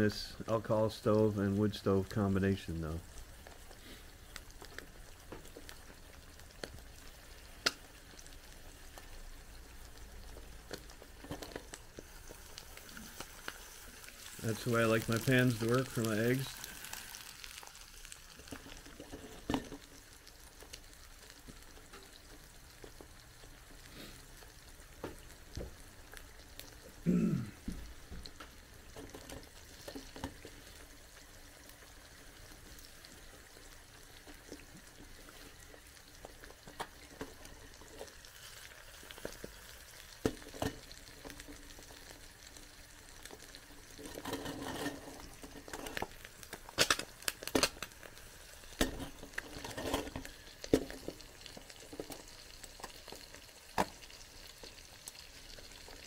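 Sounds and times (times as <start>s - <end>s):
eggs sizzling in a pan: 0.0s - 56.0s.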